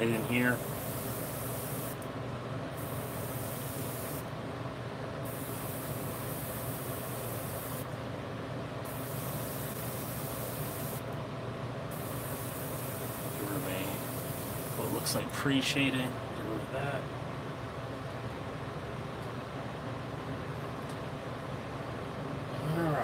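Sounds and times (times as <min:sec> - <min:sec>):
airbrush air hiss: 0:00.5 - 0:02.0, 0:02.8 - 0:04.3, 0:05.3 - 0:07.9, 0:08.9 - 0:11.0, 0:11.9 - 0:15.2.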